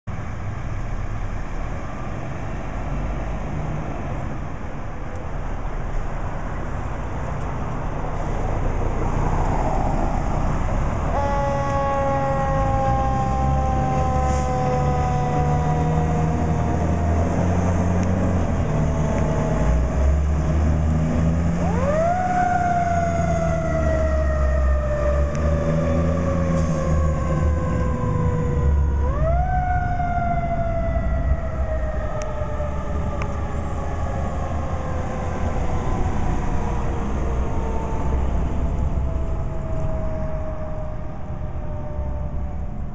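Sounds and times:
heavy truck engine rumbling: 0.1 - 42.9
siren wailing: 10.1 - 42.9.

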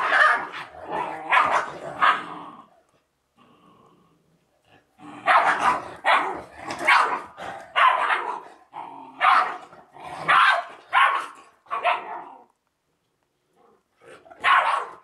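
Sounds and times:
dogs barking: 0.0 - 2.3, 5.2 - 8.5, 9.2 - 12.3, 14.4 - 15.0.

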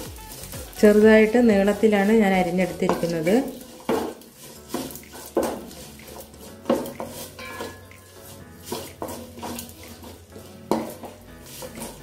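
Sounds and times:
ginger frying in oil: 0.0 - 12.0
wooden spatula scraping metal pot: 0.0 - 12.0.

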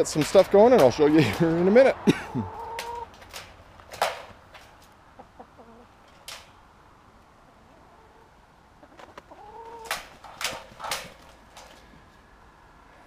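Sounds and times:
hen clucking: 2.3 - 3.4, 5.1 - 6.0, 7.5 - 10.1.

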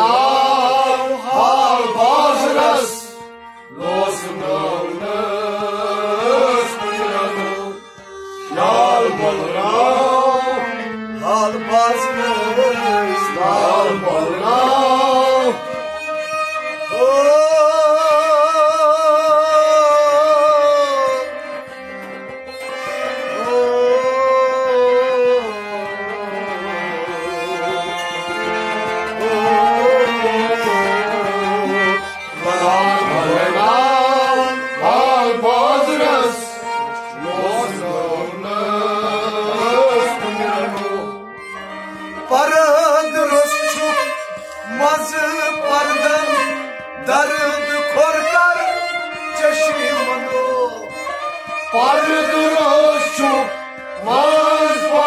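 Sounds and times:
man singing: 0.0 - 7.8, 8.5 - 15.9, 16.8 - 21.6, 23.0 - 41.2, 42.2 - 55.0
instrumental accompaniment: 0.0 - 55.0.

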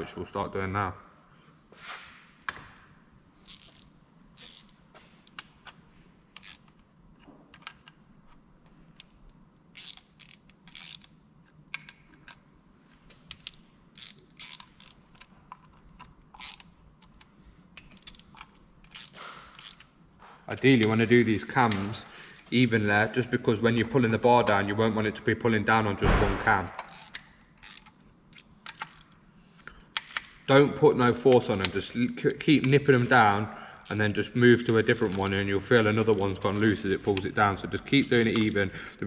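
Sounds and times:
socket ratchet clicking: 3.4 - 6.9, 7.5 - 12.4, 13.3 - 19.9, 21.7 - 22.4, 26.7 - 38.8.

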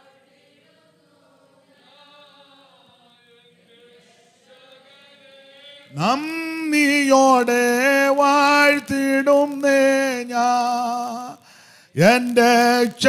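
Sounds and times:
faint group singing: 0.0 - 13.0
amplified lead voice singing: 5.9 - 13.0.

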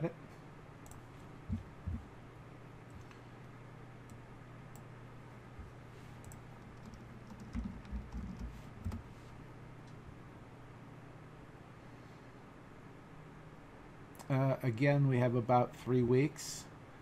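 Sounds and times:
steady low hum: 0.0 - 17.0
typing on computer keyboard: 6.3 - 9.0.

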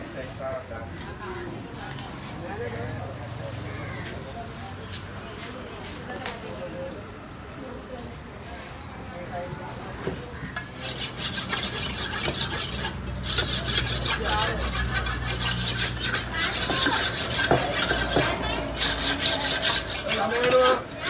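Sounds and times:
knife scraping on sharpening stone: 10.6 - 21.0.

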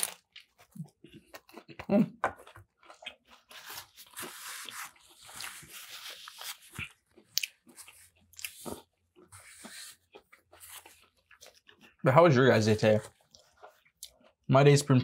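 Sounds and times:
person crunching food: 0.0 - 12.0, 12.6 - 14.5
mouth clicks and smacks: 6.8 - 8.7.

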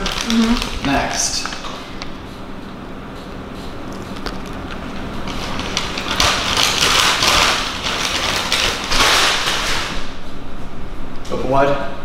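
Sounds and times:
paper bag crinkling and rustling: 0.0 - 1.3, 4.0 - 10.1.

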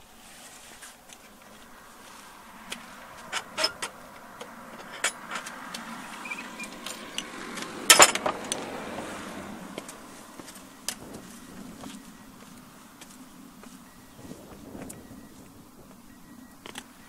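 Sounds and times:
footsteps on stone steps: 9.5 - 16.0.

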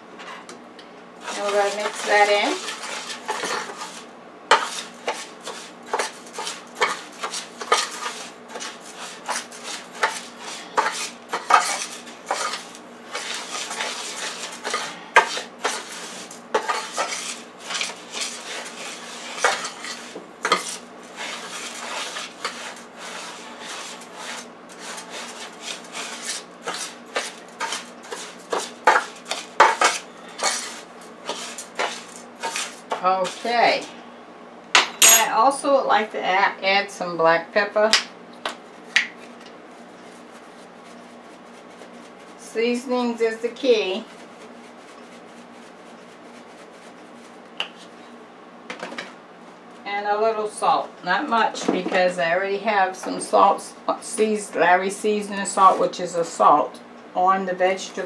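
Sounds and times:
spoon scraping rice in metal pan: 1.2 - 33.8.

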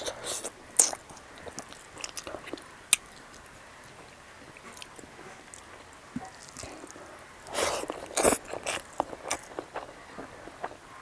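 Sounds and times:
person chewing wetly: 0.0 - 11.0.

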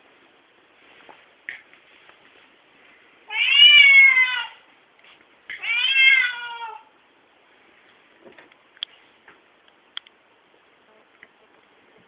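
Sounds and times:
cat meowing: 3.3 - 4.6, 5.6 - 6.9.

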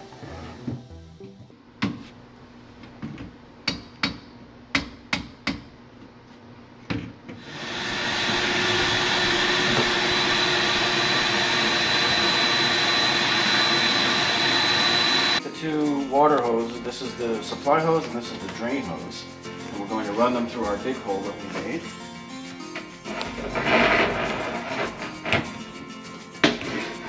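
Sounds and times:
motor running with high whine: 7.4 - 15.4.

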